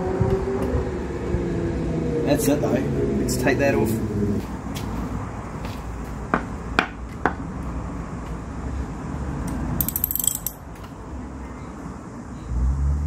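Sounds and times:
ratchet clicking: 9.8s - 10.6s
sharp metal tool clicks: 9.8s - 10.6s.

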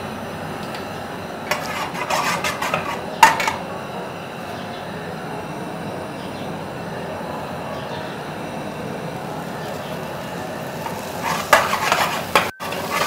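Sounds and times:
metal cookware clattering: 1.5s - 3.7s, 10.8s - 13.0s
steady background hiss: 2.8s - 13.0s.

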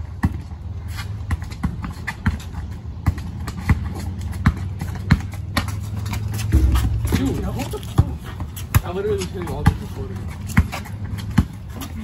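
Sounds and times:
basketball bouncing on concrete: 0.1s - 0.6s, 1.2s - 12.0s
low rumble: 6.5s - 8.4s.

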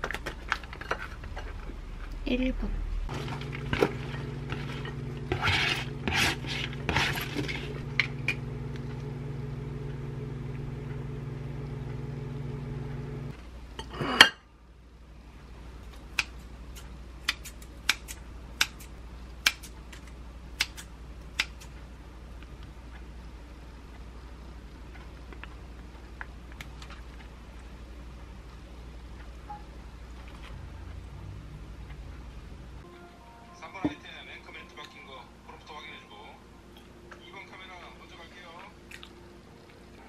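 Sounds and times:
microwave oven humming: 3.1s - 15.8s.

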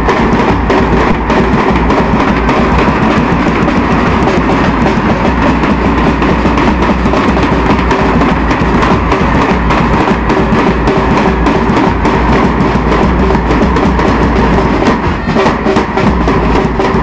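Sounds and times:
bass drum beating: 0.0s - 17.0s
brass band playing: 14.5s - 17.0s.

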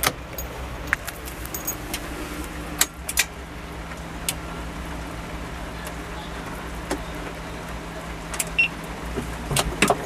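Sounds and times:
diesel tractor engine idling: 0.0s - 10.0s
key ring jingling: 1.4s - 1.8s.

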